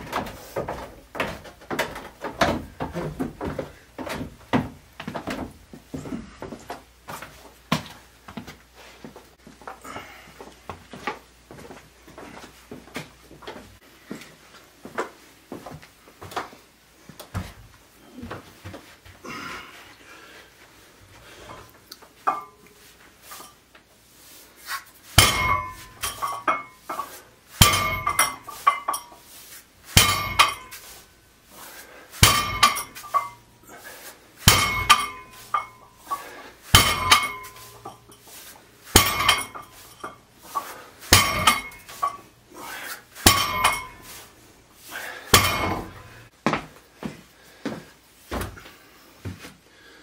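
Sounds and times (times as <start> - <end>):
weight plates clanking: 25.2 - 29.2, 29.9 - 30.9, 32.2 - 33.5, 34.4 - 38.2, 38.9 - 42.4, 43.2 - 44.2, 45.4 - 46.3.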